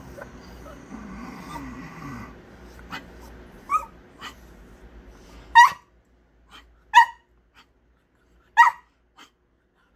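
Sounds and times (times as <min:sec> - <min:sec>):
small dog yipping: 0:03.6 - 0:04.4, 0:05.6 - 0:05.9, 0:06.5 - 0:07.3, 0:08.6 - 0:09.3.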